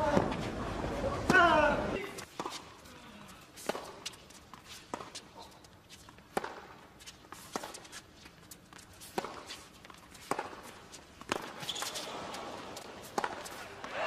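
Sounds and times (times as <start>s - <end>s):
shoe scuffs on hard court: 3.6s - 13.7s
tennis ball struck by racquet: 6.3s - 6.7s, 9.0s - 12.1s, 12.8s - 13.6s.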